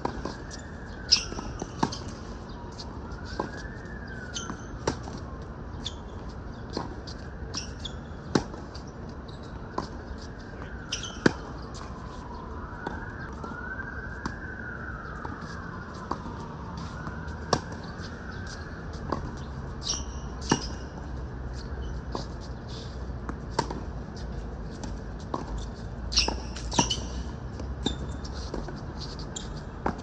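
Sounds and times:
siren wailing: 0:00.0 - 0:06.3, 0:09.4 - 0:20.7.

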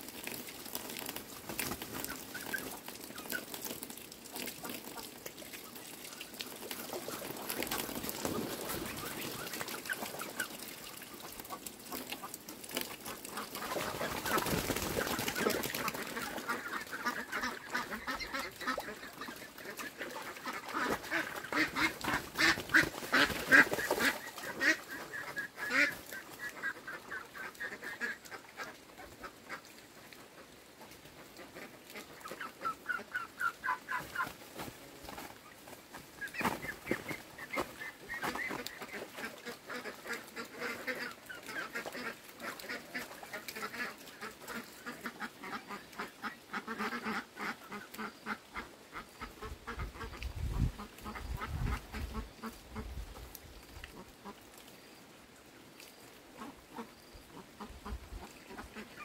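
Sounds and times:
ducks quacking: 0:13.0 - 0:34.7, 0:36.2 - 0:53.0, 0:56.4 - 0:59.0.

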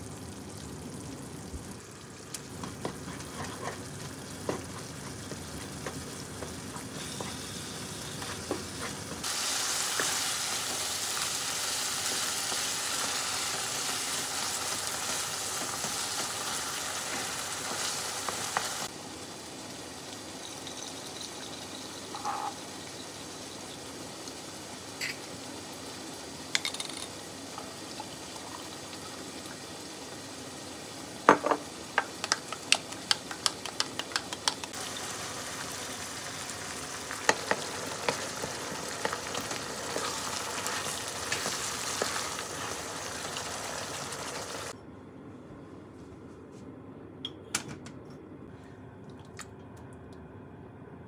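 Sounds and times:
meat sizzling in a pan: 0:00.0 - 0:44.8
utensils clicking and tapping: 0:32.0 - 0:34.8.

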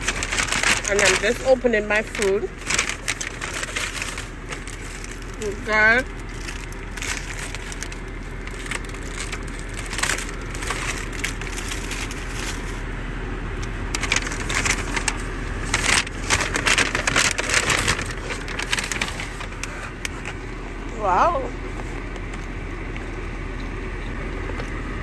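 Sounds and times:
paper bag rustling: 0:00.0 - 0:13.0, 0:13.8 - 0:20.5.

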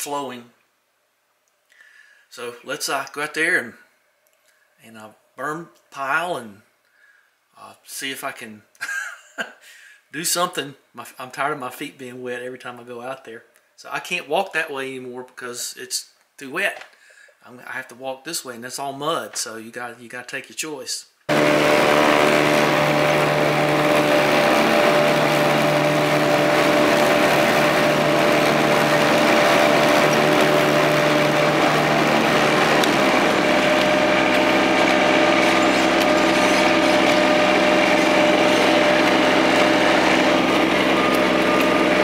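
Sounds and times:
lawn tractor engine running: 0:21.3 - 0:42.0.

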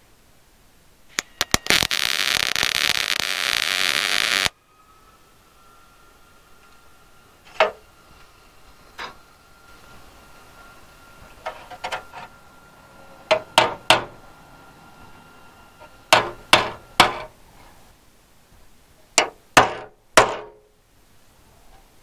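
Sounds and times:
hammer striking metal: 0:04.7 - 0:17.4, 0:19.2 - 0:20.6.

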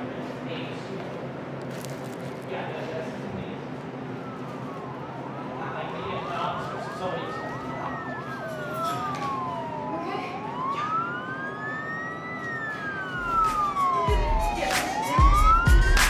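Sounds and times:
police sirens wailing: 0:02.8 - 0:16.0
siren yelping sweeps: 0:03.5 - 0:16.0.

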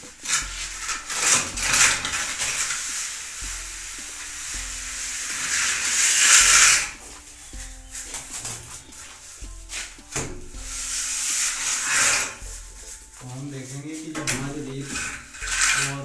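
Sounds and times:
straightedge scraping wet plaster: 0:00.0 - 0:07.2, 0:07.9 - 0:16.0.

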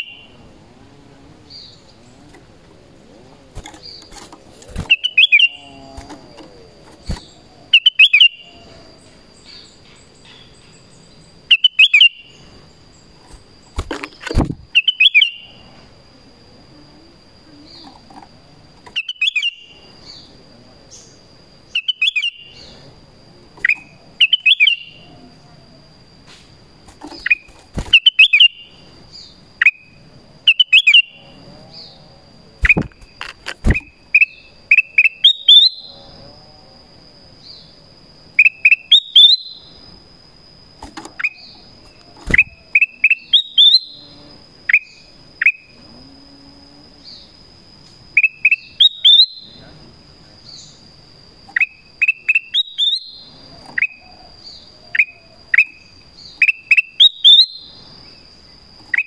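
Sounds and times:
bulbul whistled calls: 0:03.6 - 0:06.1, 0:06.8 - 0:08.7, 0:09.4 - 0:12.4, 0:14.7 - 0:15.5, 0:23.6 - 0:25.1, 0:27.1 - 0:29.9, 0:30.5 - 0:31.2, 0:33.7 - 0:35.9, 0:38.4 - 0:39.8, 0:42.2 - 0:44.0, 0:48.1 - 0:49.6, 0:51.6 - 0:58.2.

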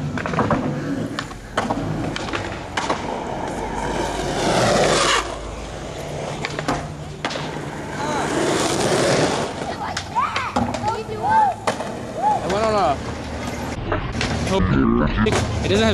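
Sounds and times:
skateboard deck clacks: 0:00.0 - 0:03.7, 0:06.3 - 0:13.6
skateboard wheels rolling on asphalt: 0:00.0 - 0:14.5.

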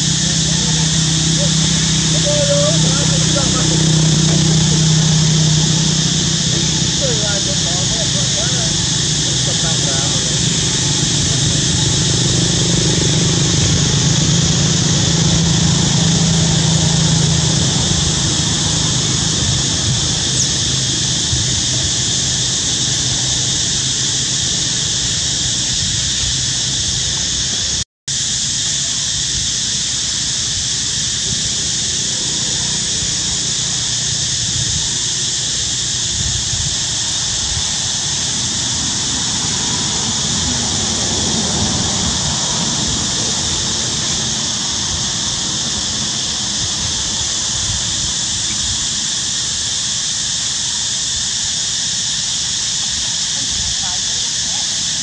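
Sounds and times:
low rumble: 0:00.0 - 0:27.8
high-pitched insect chorus: 0:00.0 - 0:55.0.

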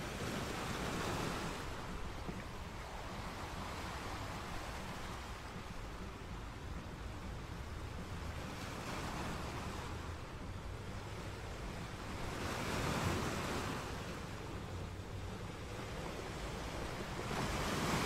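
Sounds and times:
ocean surf washing ashore: 0:00.0 - 0:18.0
wind rumbling on microphone: 0:00.0 - 0:18.0.

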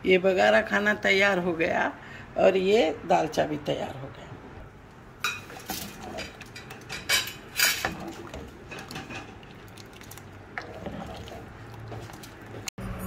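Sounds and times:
spoon clinking and scraping pot: 0:05.2 - 0:09.5.

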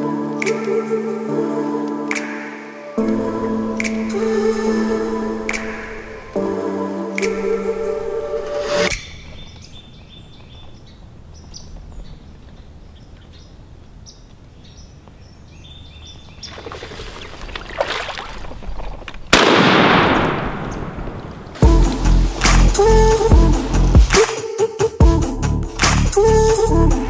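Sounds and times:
birds chirping: 0:07.2 - 0:23.2
shotgun blast: 0:19.3 - 0:21.6.

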